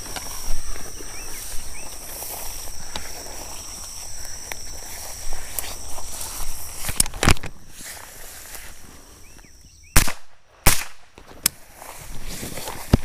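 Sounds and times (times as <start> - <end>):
footsteps crunching through brush: 0.0 - 13.0
insect buzz: 0.0 - 13.0
rifle shots: 10.0 - 11.2.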